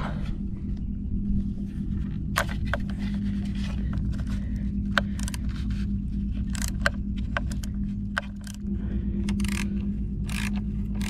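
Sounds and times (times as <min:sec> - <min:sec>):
low hum: 0:00.0 - 0:11.0
screwdriver clicking and scraping: 0:02.4 - 0:08.7, 0:09.3 - 0:11.0.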